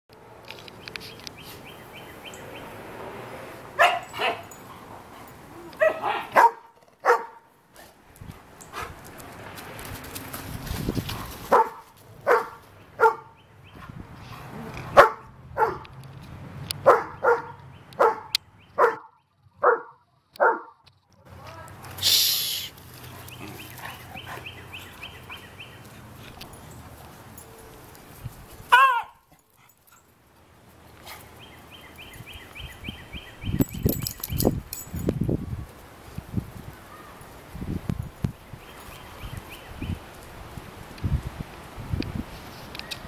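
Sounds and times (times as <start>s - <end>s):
dog barks: 3.8s - 4.5s, 5.8s - 7.5s, 11.5s - 13.4s, 14.9s - 15.9s, 16.8s - 20.8s, 28.7s - 29.2s.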